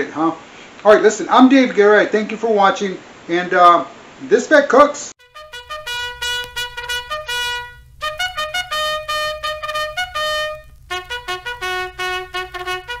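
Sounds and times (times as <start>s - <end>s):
solo trumpet playing a brisk tune: 5.2s - 13.0s.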